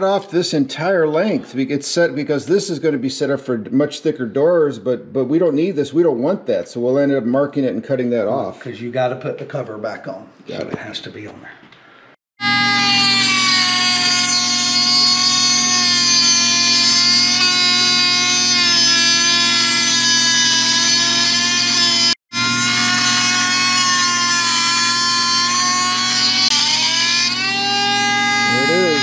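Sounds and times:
rotary tool cutting metal: 12.4 - 29.0.

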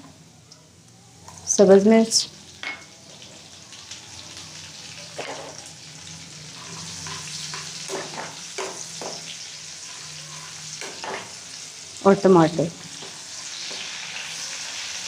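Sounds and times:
oil sizzling in a frying pan: 0.0 - 15.0
metal spoon scraping a pan: 6.5 - 9.3.

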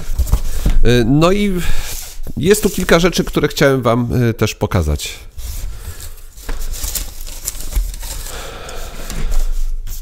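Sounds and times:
cardboard rustling and scraping: 0.0 - 0.9, 5.3 - 10.0.

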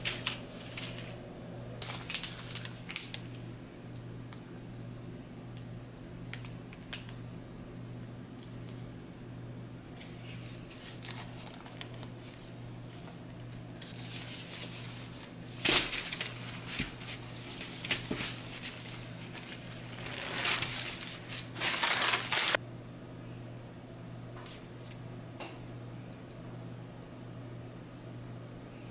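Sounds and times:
paper and packaging crinkling: 0.0 - 1.1, 1.8 - 3.4, 10.0 - 22.6.

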